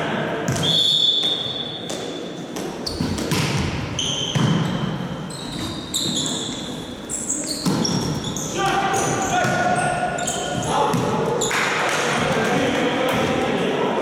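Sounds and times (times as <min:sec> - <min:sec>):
sports shoes squeaking: 0:00.5 - 0:11.7.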